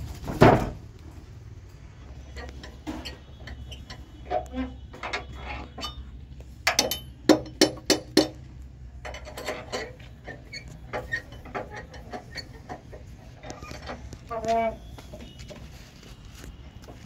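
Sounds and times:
sharp metal clanks: 5.1 - 8.4.

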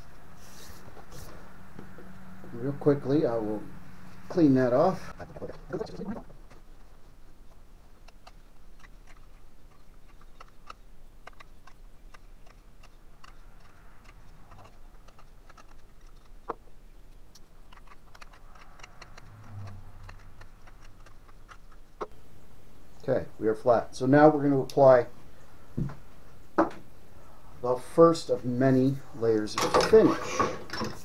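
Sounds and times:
knife paring wood: 6.3 - 22.2.

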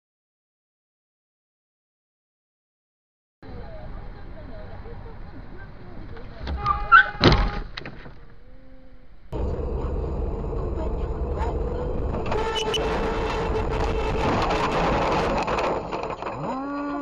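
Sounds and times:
car interior road and engine rumble: 9.4 - 16.5.

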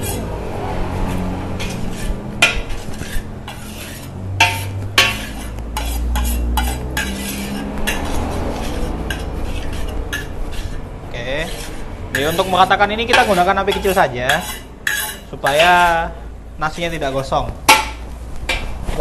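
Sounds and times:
metal spatula scraping a wok: 0.0 - 19.0.

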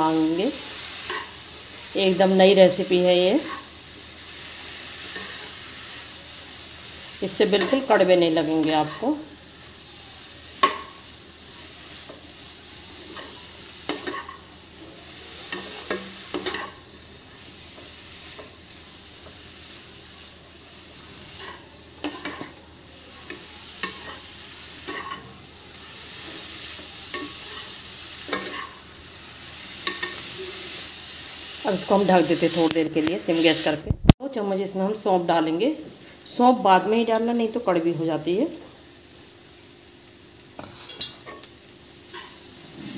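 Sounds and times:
food sizzling in a pan: 0.0 - 42.9
spatula scraping and tapping pan: 7.5 - 7.9, 10.6 - 11.2, 13.0 - 14.5, 15.5 - 16.8, 20.0 - 22.6, 23.2 - 25.3, 26.2 - 28.8, 29.8 - 30.3, 40.6 - 42.4.

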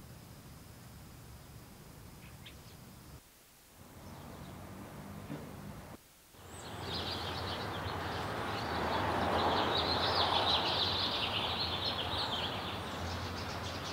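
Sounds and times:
background noise wash: 0.0 - 13.9
birds chirping: 6.4 - 13.9.

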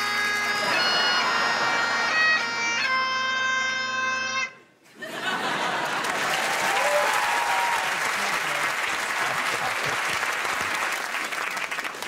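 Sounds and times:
bagpipes playing: 0.0 - 4.7
audience applauding: 5.6 - 12.0.

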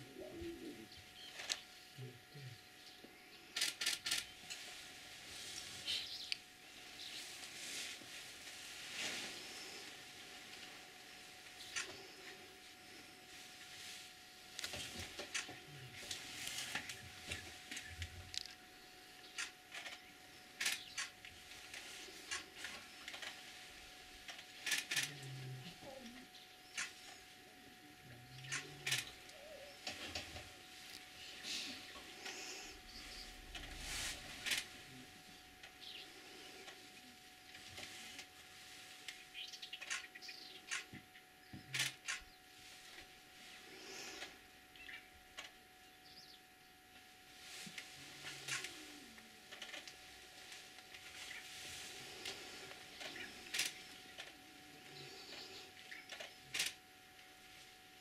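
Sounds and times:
camera shutters clicking: 3.6 - 4.3
sharp clicks: 20.6 - 21.3.

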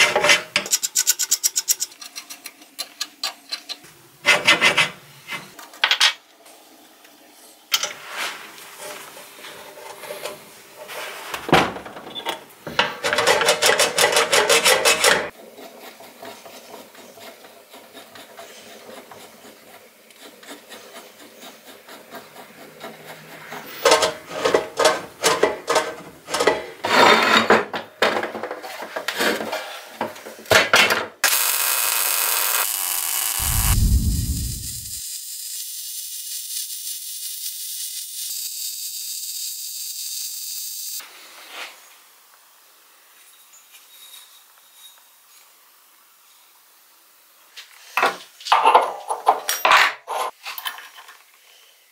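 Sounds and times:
file rasping strokes: 13.5 - 23.8.

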